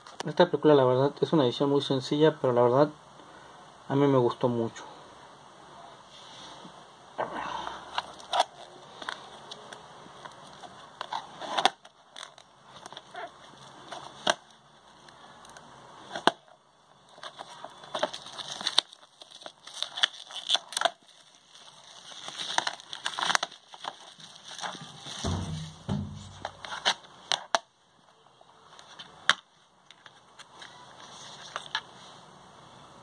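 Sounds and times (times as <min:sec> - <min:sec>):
plastic wrap crinkling and tearing: 0:08.0 - 0:16.4, 0:17.1 - 0:25.8.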